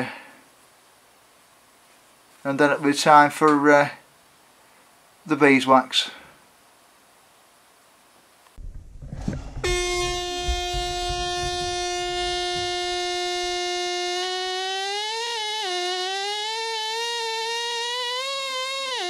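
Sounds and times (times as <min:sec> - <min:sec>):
low knocks: 0:08.6 - 0:13.8
air scribe high-pitched buzz: 0:09.1 - 0:19.0.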